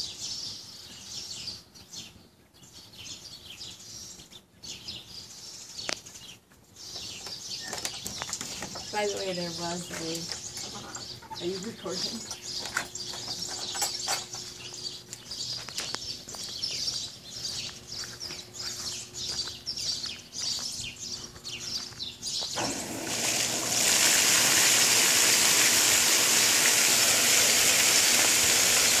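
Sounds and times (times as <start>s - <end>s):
ducklings peeping: 14.3s - 22.6s
fountain water splashing: 22.6s - 29.0s.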